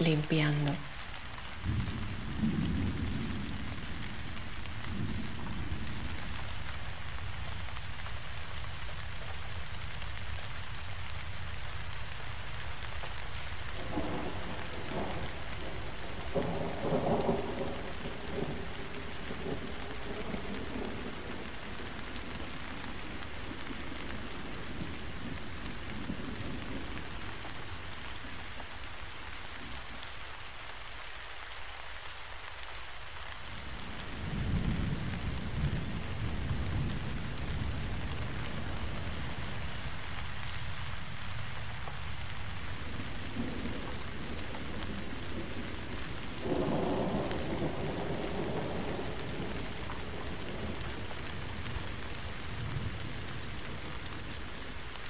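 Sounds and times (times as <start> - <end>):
steady rainfall: 0.0 - 55.0
rolls of thunder: 1.6 - 6.4, 13.8 - 27.4, 42.8 - 52.0.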